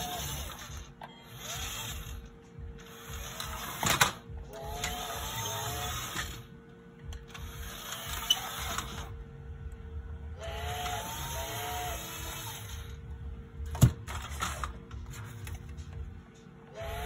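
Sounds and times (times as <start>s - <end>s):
toy train motor and gears: 0.0s - 2.2s, 2.8s - 6.5s, 7.3s - 9.1s, 10.4s - 13.0s, 16.8s - 17.0s.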